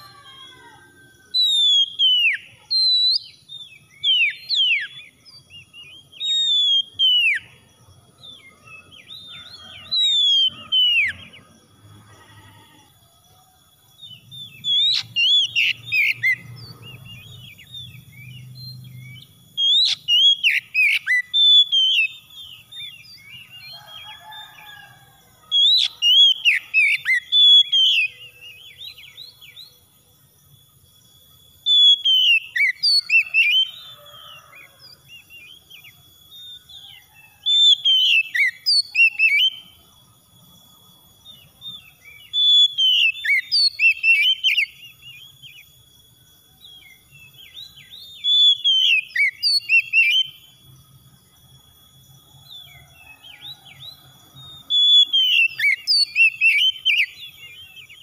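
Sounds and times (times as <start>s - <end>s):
bird singing whistled phrases: 1.4s - 7.5s, 9.0s - 11.2s, 14.1s - 23.5s, 37.5s - 39.6s, 41.8s - 45.6s, 47.4s - 50.4s, 54.7s - 57.3s.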